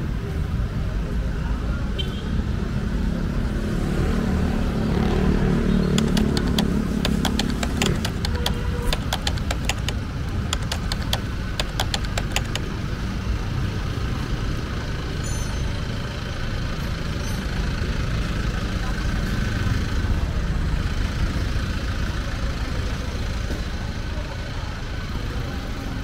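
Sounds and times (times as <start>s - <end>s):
vehicle engine running: 4.7s - 12.9s
sharp clicks: 5.9s - 12.7s.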